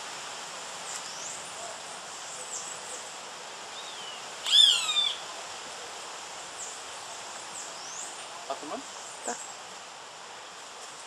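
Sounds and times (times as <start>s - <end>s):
hawk harsh falling call: 4.5s - 5.2s.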